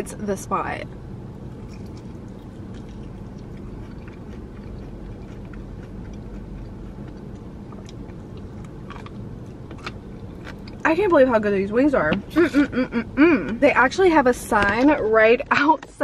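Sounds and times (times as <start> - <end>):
low background hum: 0.0 - 16.0
chewing crispy chicken: 1.5 - 10.8.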